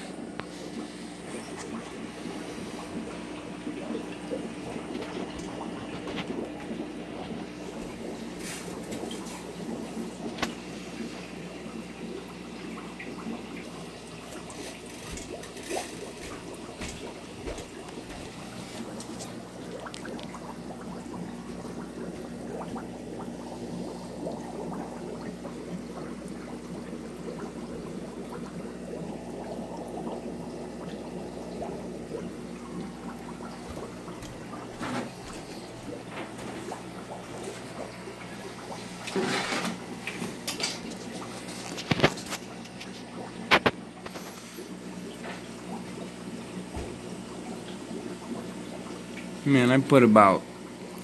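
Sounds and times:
water trickling and bubbling: 0.0 - 51.0.

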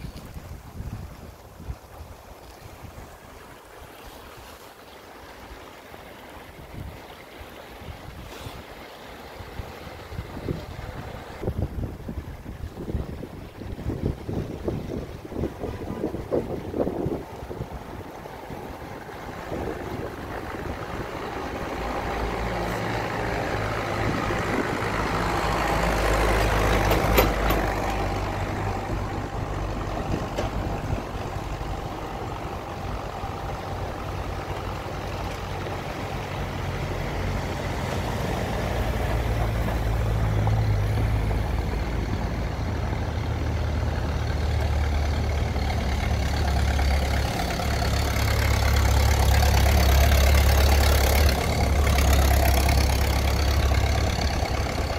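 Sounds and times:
tractor engine running: 10.1 - 54.9.

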